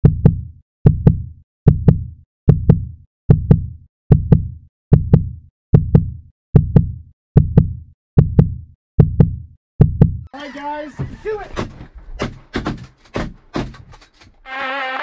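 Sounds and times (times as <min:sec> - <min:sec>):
heartbeat thumps: 0:00.0 - 0:10.3.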